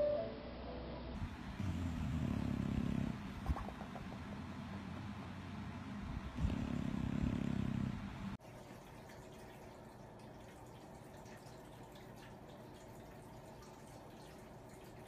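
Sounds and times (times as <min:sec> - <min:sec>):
dog snoring: 0:01.6 - 0:03.2, 0:06.3 - 0:08.3.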